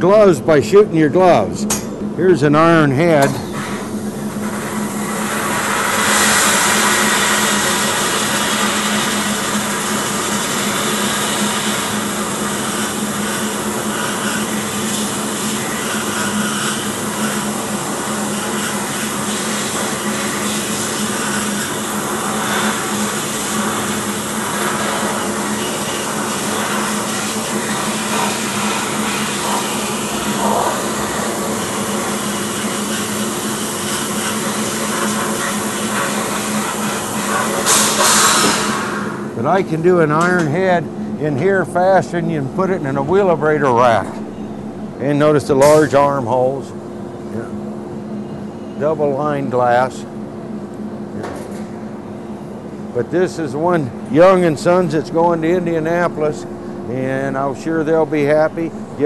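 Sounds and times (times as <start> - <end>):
steady low hum: 0.0 - 59.0
shot blasting hiss on metal: 4.4 - 39.3.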